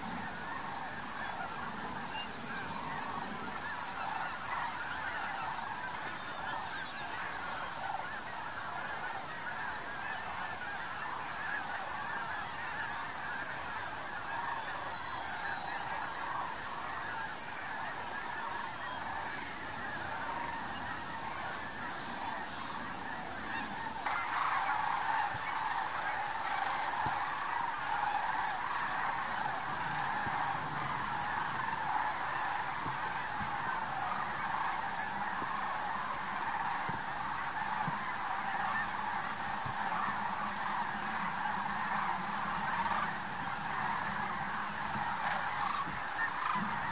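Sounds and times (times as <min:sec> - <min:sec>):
flock of geese honking: 0:00.0 - 0:46.9.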